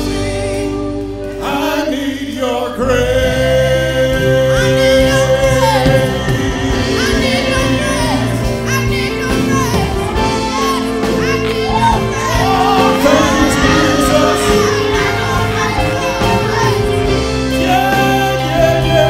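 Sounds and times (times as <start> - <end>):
instrumental backing chords: 0.0 - 19.0
woman singing gospel: 0.0 - 19.0.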